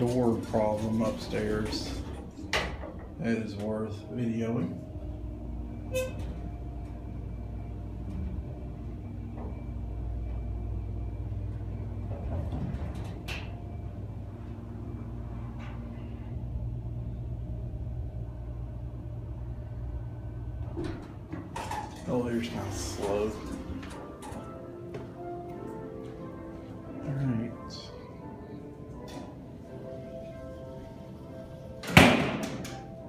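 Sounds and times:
faint steady tones: 0.0 - 32.0
elevator hum and rumble: 0.0 - 33.0
elevator click: 20.6 - 26.2.

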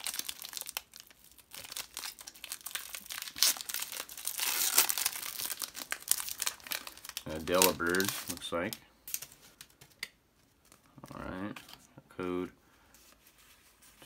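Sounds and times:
foil wrapper tearing: 0.0 - 9.4
foil wrapper crinkling: 0.0 - 10.0.

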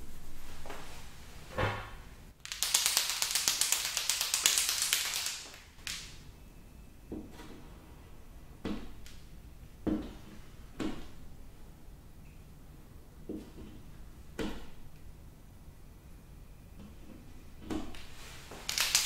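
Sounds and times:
marker mixing ball rattling: 2.4 - 5.6, 18.6 - 19.0.

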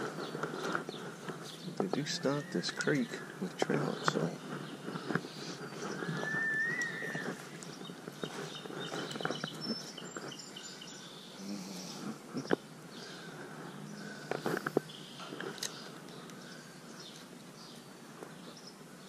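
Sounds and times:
birds chirping: 0.0 - 19.0
steady background hiss: 0.0 - 19.0
rising whistled note: 6.0 - 7.4.

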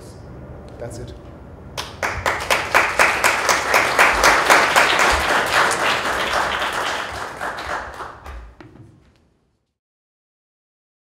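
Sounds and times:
audience applauding: 1.8 - 8.6.

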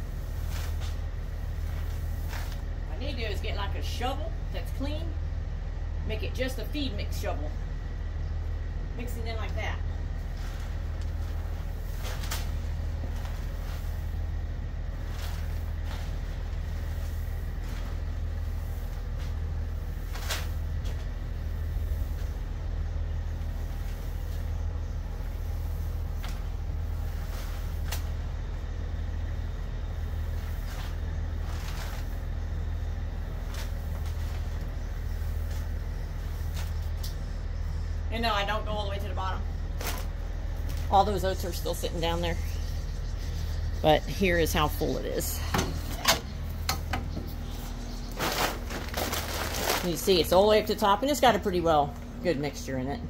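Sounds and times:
hands stirring dry feed: 0.0 - 3.6, 10.2 - 22.3.

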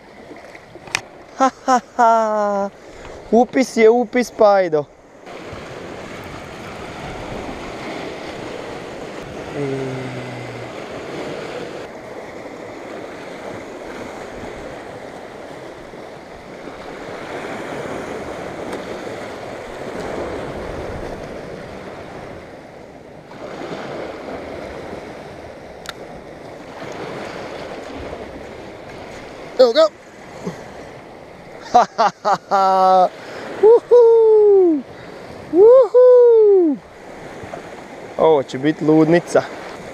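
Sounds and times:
waves washing against rocks: 5.2 - 22.6, 23.2 - 33.7
wind buffeting microphone: 5.3 - 9.6
short low tone: 9.5 - 10.7.

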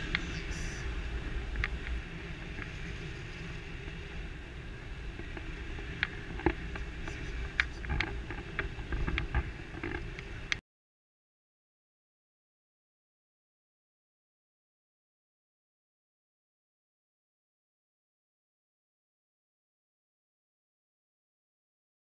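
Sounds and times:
wind buffeting microphone: 0.0 - 10.6
light clicks and rattles: 5.2 - 10.6.

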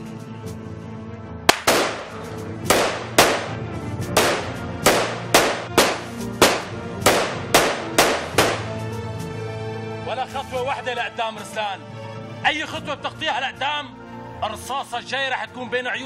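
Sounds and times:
dramatic background music: 0.0 - 15.8
rifle shots cracking: 1.5 - 8.8.

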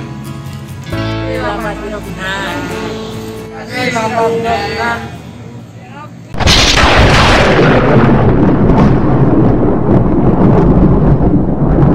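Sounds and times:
loud boom: 6.4 - 11.9.

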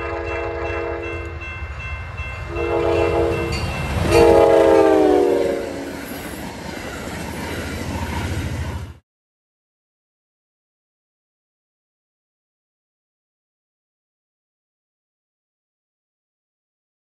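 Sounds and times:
locomotive air horn blasts: 0.0 - 1.4, 2.5 - 5.9
passing train rumble: 0.0 - 9.0.

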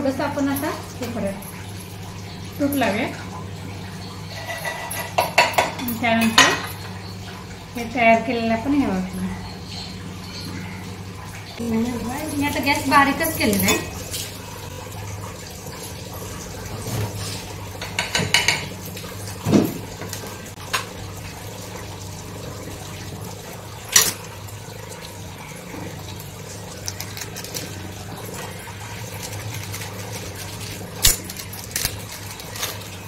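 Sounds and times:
bread sizzling in pan: 11.6 - 33.0
knife clinking against container: 13.5 - 14.0, 23.9 - 24.2, 29.1 - 32.8.

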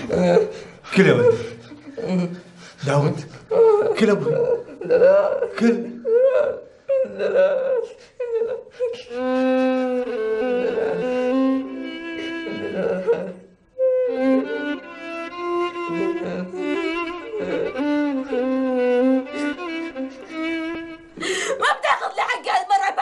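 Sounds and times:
violin melody over strings: 9.1 - 13.2, 13.8 - 21.2.

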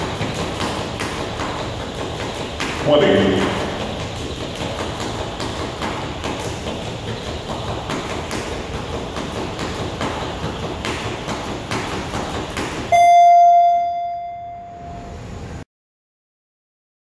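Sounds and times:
jump rope slapping wooden floor: 0.0 - 12.9
quick footfalls: 0.0 - 12.9
loud ringing timer beep: 12.9 - 15.2.

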